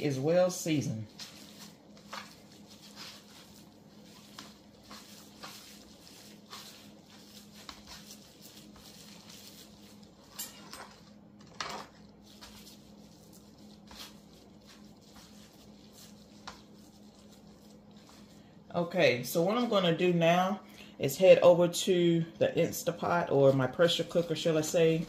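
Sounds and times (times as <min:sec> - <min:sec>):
gloved hands rubbing meat: 0:00.0 - 0:10.4, 0:12.0 - 0:18.6, 0:22.8 - 0:25.0
faint steady hum: 0:00.0 - 0:25.0.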